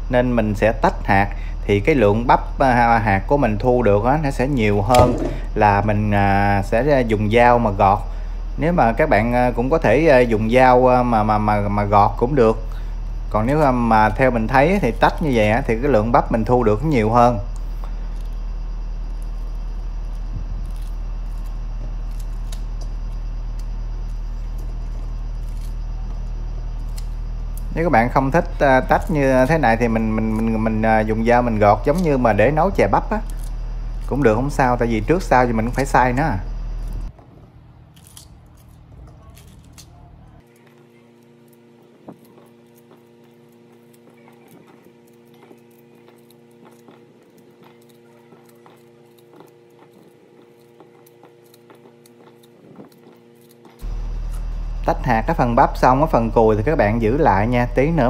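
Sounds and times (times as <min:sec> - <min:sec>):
low hum: 0:00.0 - 0:58.0.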